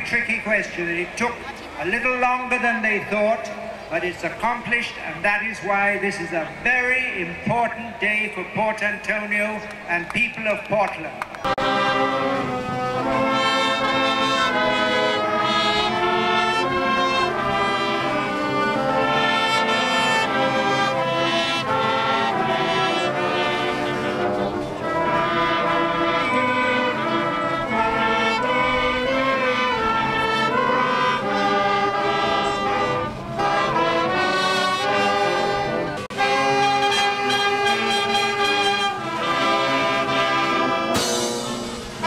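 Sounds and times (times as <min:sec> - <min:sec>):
brass band playing: 0:11.4 - 0:42.0.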